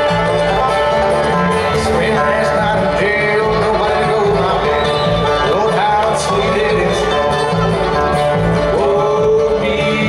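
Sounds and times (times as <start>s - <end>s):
banjo: 0.0s - 10.0s
bluegrass band playing: 0.0s - 10.0s.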